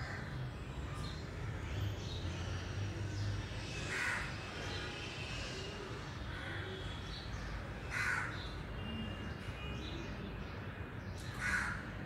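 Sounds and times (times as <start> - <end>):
crow cawing: 7.9 - 8.3, 11.4 - 11.8.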